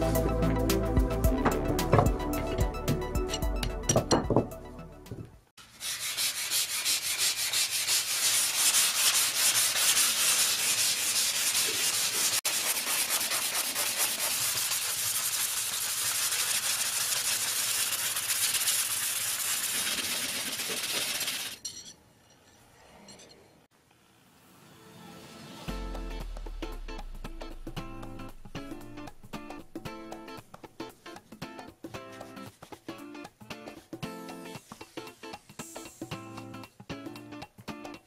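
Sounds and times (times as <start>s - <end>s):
sanding rusty steel rod: 5.6s - 21.6s.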